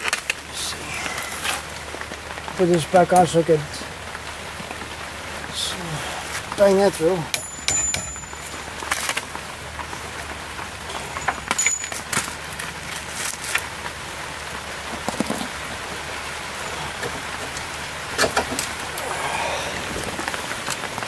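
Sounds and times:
metal tools clinking on metal: 0:07.4 - 0:08.6, 0:11.0 - 0:12.2.

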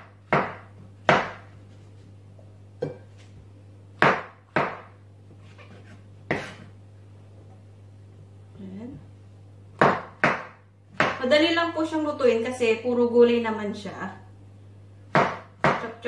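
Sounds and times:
knife hitting chopping board: 0:00.0 - 0:01.4, 0:04.0 - 0:04.9, 0:06.3 - 0:06.6, 0:09.8 - 0:11.2, 0:15.2 - 0:15.9.

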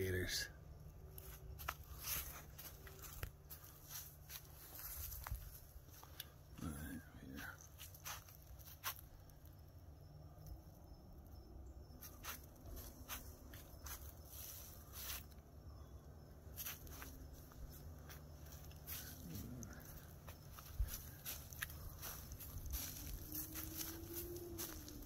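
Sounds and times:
footsteps crunching on dry leaves: 0:01.2 - 0:06.2, 0:07.5 - 0:09.1, 0:12.0 - 0:15.4, 0:16.5 - 0:25.0.

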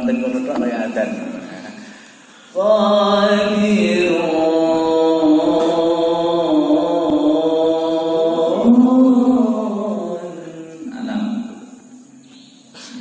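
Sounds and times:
man reciting melodically: 0:00.0 - 0:11.8.

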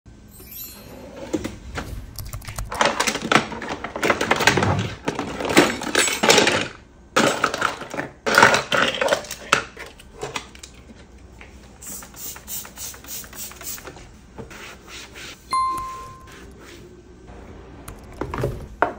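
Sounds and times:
plastic utensils clattering: 0:02.7 - 0:11.1.

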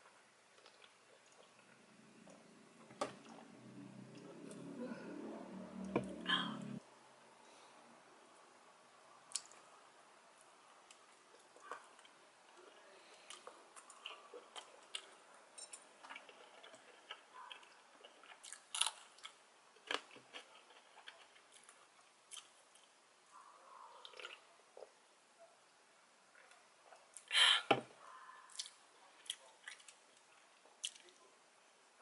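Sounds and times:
chewing with crisp crunches: 0:00.5 - 0:02.5, 0:10.8 - 0:22.9, 0:23.8 - 0:25.0, 0:28.4 - 0:31.3.

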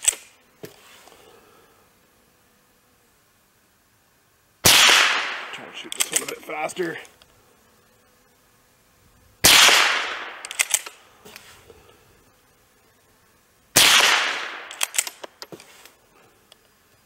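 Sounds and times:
rifle shots: 0:04.6 - 0:06.4, 0:09.4 - 0:11.0, 0:13.8 - 0:15.3.

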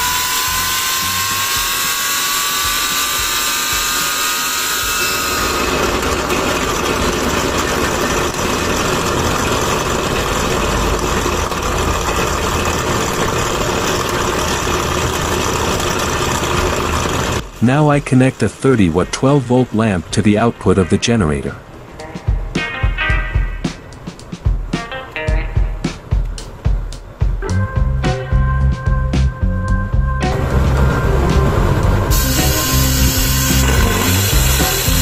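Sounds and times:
rushing steam: 0:00.0 - 0:20.0, 0:30.4 - 0:35.0
high whine of turbine: 0:00.0 - 0:22.6, 0:29.9 - 0:35.0
low rumble: 0:27.5 - 0:34.6.

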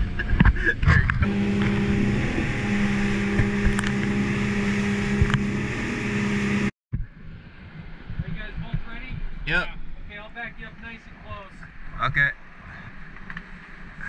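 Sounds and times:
water rushing from wake: 0:00.0 - 0:06.7
outboard motor drone: 0:00.0 - 0:08.8
wind on microphone: 0:00.0 - 0:10.2.

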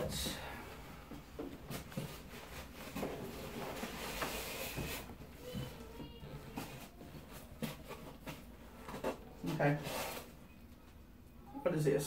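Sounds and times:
packing material rustling: 0:01.7 - 0:10.4.

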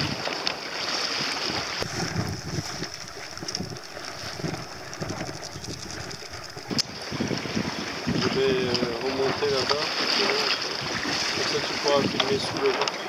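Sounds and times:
water splashing along hull: 0:00.0 - 0:13.0
wind buffeting microphone: 0:01.4 - 0:09.9, 0:10.7 - 0:12.7.

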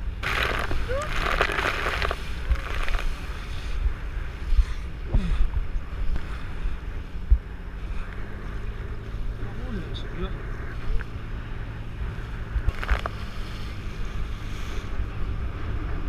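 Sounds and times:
water rushing and splashing: 0:00.0 - 0:03.8.

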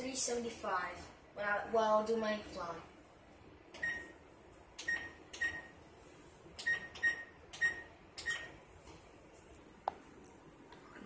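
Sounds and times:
oven control panel beeps: 0:03.8 - 0:04.1, 0:04.8 - 0:05.8, 0:06.6 - 0:08.6.

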